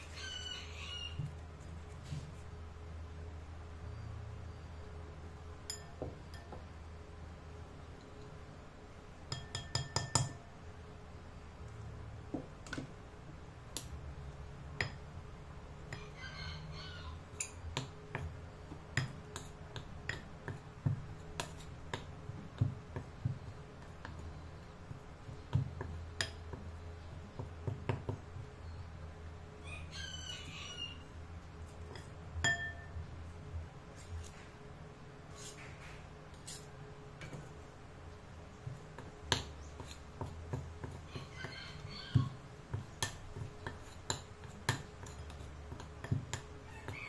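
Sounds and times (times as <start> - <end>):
cutlery clinking on glass bowl: 5.7 - 6.6, 9.3 - 10.4, 31.9 - 33.0
steady low hum: 31.0 - 46.7.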